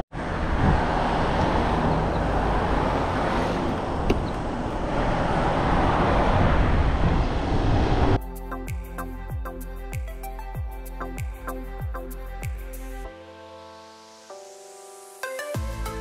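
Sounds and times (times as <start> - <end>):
road noise: 0.0 - 14.2
wind rushing: 0.2 - 8.2.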